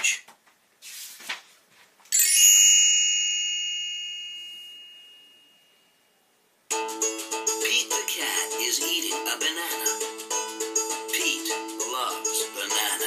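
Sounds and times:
page turning swish: 0.8 - 1.9
bell-like chime: 2.1 - 6.2.

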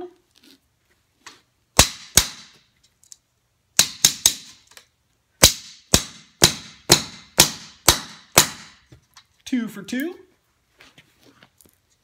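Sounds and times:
hammer striking nail: 1.8 - 2.6, 3.8 - 4.6, 5.4 - 8.9.

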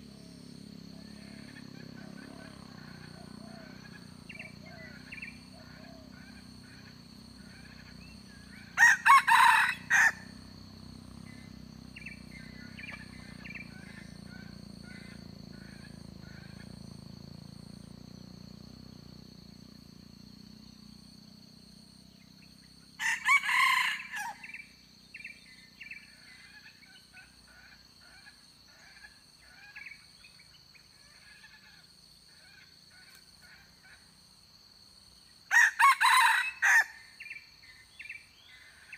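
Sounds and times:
rooster crowing: 8.6 - 10.4, 23.0 - 24.6, 35.5 - 37.4.

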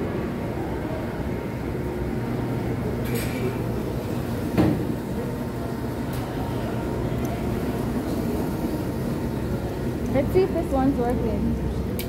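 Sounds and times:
thump: 4.6 - 4.8.

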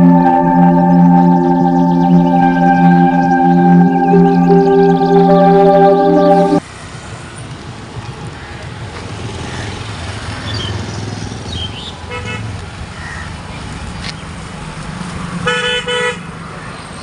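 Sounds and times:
long horn honk: 0.0 - 6.6.

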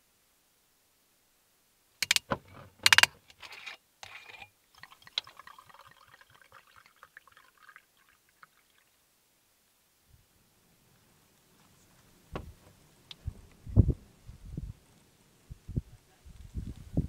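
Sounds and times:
sharp clicks and rattles: 2.0 - 4.4
wine pouring into a mug: 4.0 - 8.9.

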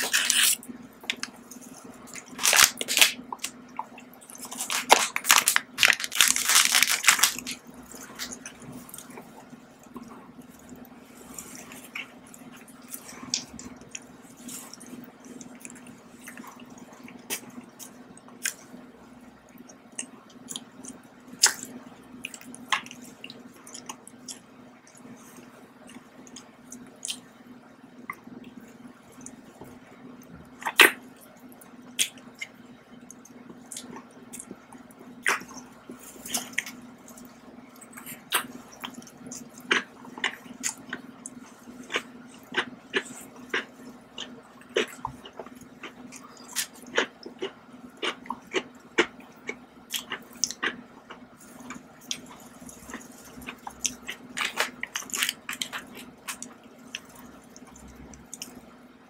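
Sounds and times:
chewing and wet mouth sounds: 0.0 - 18.8, 19.4 - 58.8
food crunching: 0.0 - 18.8, 31.9 - 58.8
steady low hum: 0.0 - 59.0.

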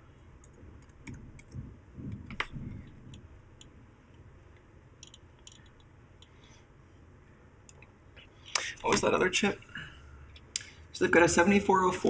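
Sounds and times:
soft low muffled sounds: 0.0 - 12.0
faint clicks and ticks: 0.4 - 6.4.

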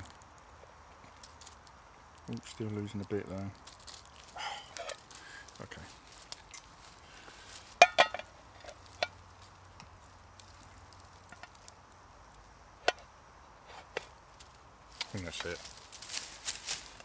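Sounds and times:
enamel plate knocking on metal pot: 7.8 - 8.3.

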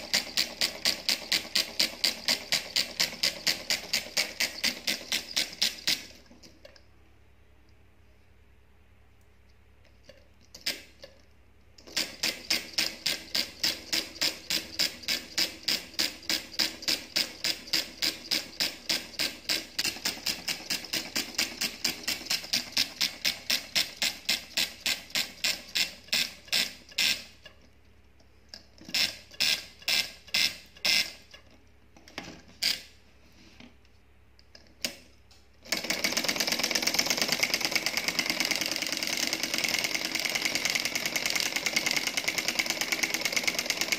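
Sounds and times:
solenoid engine clicking: 0.0 - 6.9, 10.1 - 27.7, 34.4 - 43.9.

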